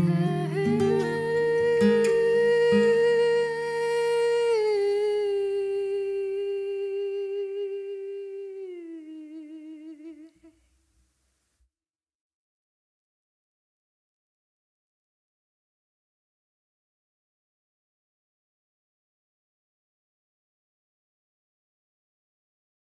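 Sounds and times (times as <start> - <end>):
low acoustic guitar notes: 0.0 - 8.7
woman singing with vibrato: 0.0 - 10.6.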